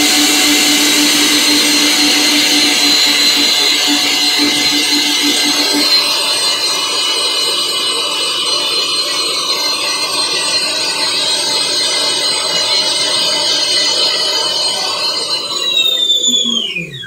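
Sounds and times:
stand mixer whisk beating batter: 0.0 - 10.3
mixer motor whine: 0.0 - 17.0.

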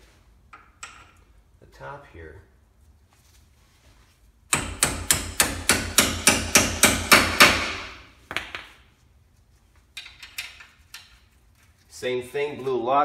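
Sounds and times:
hammer striking metal: 4.5 - 8.0.

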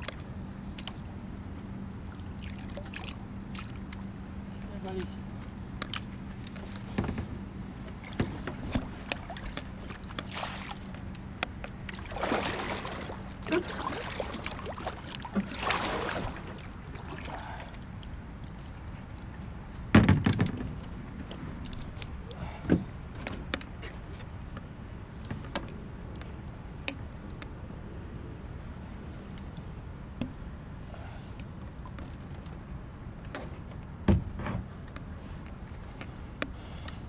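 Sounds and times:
paddle strokes in water: 7.9 - 19.1.

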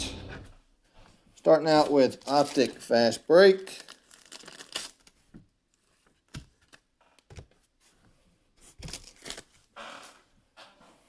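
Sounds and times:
plastic bag crinkling: 1.6 - 5.2.

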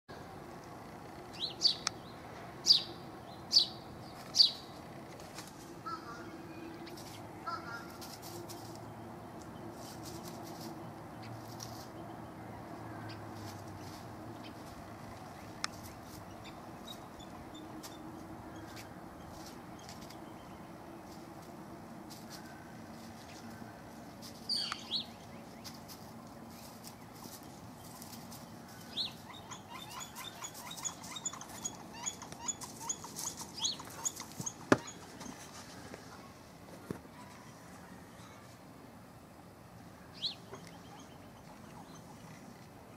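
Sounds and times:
birds rustling in dry leaves: 3.5 - 38.7.

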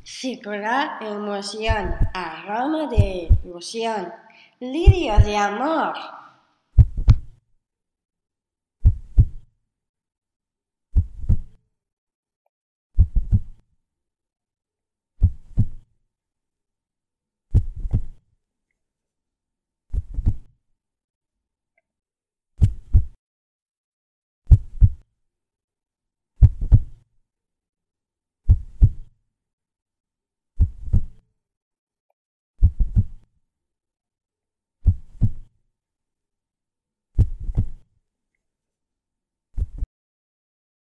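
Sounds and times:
low heartbeat thumps: 6.8 - 7.2.

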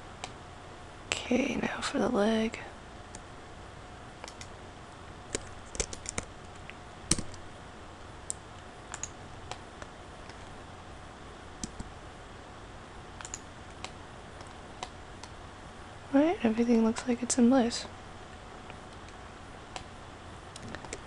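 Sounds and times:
faint hiss and hum: 0.0 - 21.0
mouse clicks: 4.2 - 4.5, 8.3 - 10.5, 13.2 - 15.4, 18.7 - 19.9
keyboard key presses: 5.3 - 6.3, 11.6 - 11.9.

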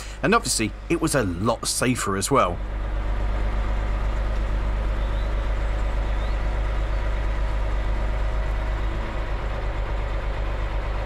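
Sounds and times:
diesel engine running under load: 0.0 - 11.0.

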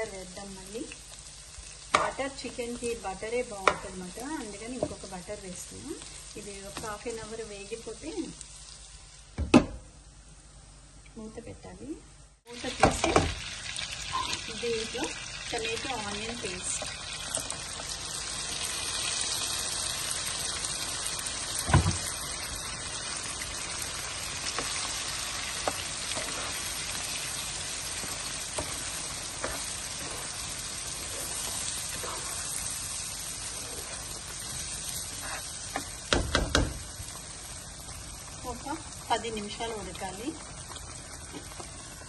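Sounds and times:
chicken sizzling in frying pan: 0.0 - 9.4, 12.5 - 42.0
spatula hitting pan: 35.8 - 36.8.

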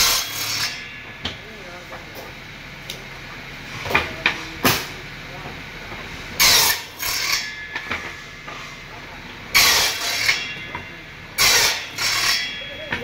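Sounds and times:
circular saw cutting boards: 0.0 - 2.2, 6.3 - 13.0
circular saw running: 0.0 - 13.0.

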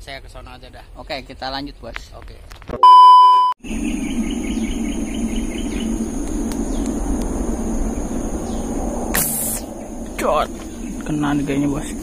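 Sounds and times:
insects droning: 3.6 - 12.0
low rushing noise: 3.6 - 12.0
rapid pulsing insect chirp: 3.6 - 12.0.

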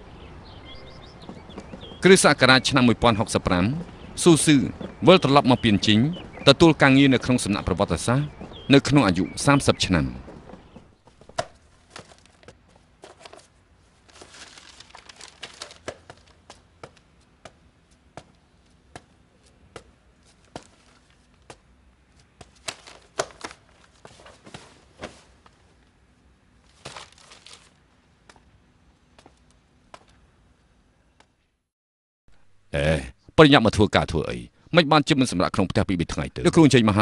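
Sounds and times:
books knocking and tapping: 10.2 - 13.5, 15.2 - 17.6
paper pages rustling: 11.1 - 17.1, 20.2 - 21.6, 22.2 - 25.8, 26.6 - 27.8.

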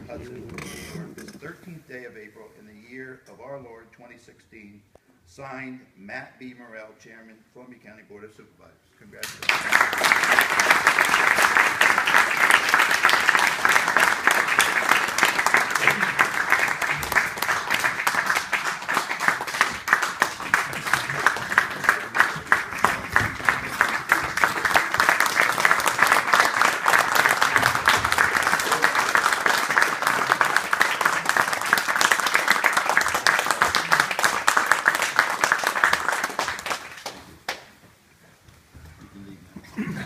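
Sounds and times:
audience applauding: 9.2 - 37.7.

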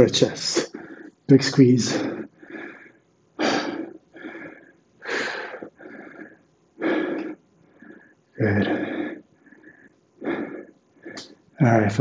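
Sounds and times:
man breathing hard: 0.7 - 11.5.

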